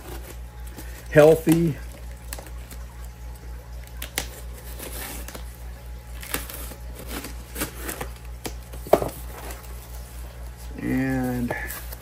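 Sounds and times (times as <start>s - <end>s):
tape and cardboard handling: 0.0s - 1.7s, 3.9s - 5.5s, 6.2s - 12.0s
steady low hum: 0.0s - 12.0s
knife slitting packing tape: 6.2s - 8.5s.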